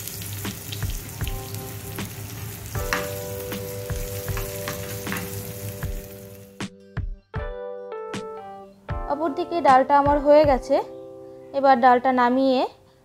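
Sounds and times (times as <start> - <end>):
spices sizzling in hot oil: 0.0 - 6.6
spatula scraping and tapping pan: 2.8 - 3.2, 4.3 - 5.5.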